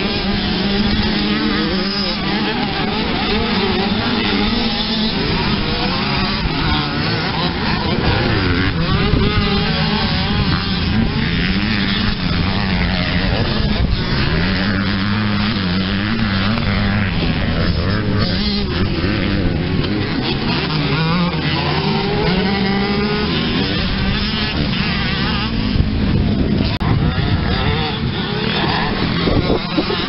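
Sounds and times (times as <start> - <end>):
motocross bikes revving: 0.0 - 30.0.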